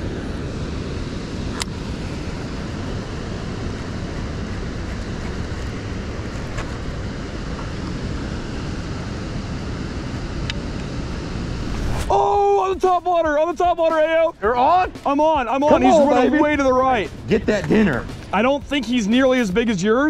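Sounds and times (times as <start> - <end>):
low rushing rumble: 11.0 - 13.0.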